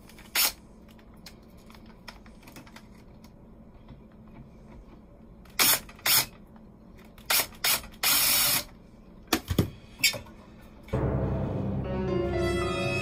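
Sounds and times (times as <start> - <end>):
cordless drill bursts: 7.3 - 8.7.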